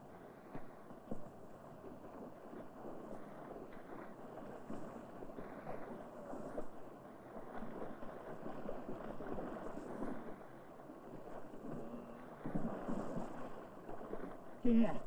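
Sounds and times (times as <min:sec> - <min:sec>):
people wading through water: 0:00.0 - 0:15.0.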